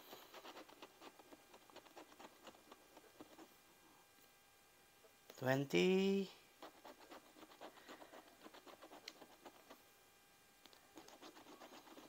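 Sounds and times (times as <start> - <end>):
scratch ticket being scratched: 0.0 - 3.5, 6.6 - 9.8, 10.9 - 12.0.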